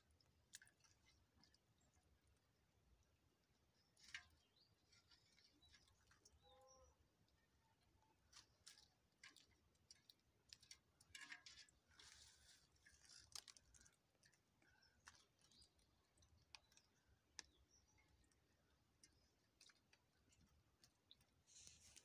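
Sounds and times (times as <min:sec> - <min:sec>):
short wet rustles: 0:21.4 - 0:22.0.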